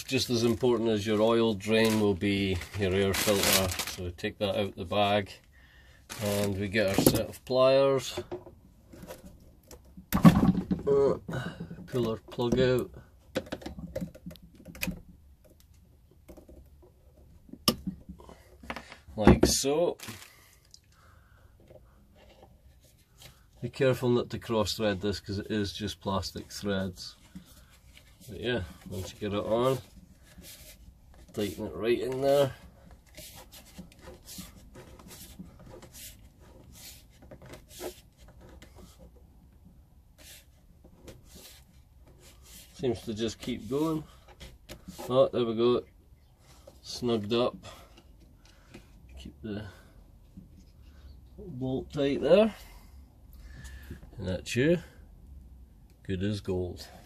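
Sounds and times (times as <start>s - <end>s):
plastic threads scraping: 0.0s - 5.3s, 6.1s - 8.3s, 22.2s - 39.6s.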